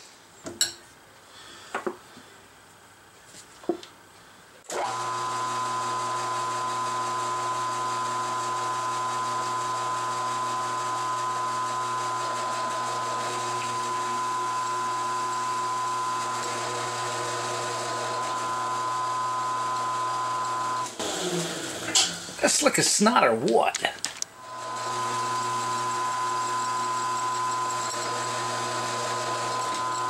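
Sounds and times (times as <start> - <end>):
drill motor humming and whining: 4.7 - 22.0, 24.4 - 30.0.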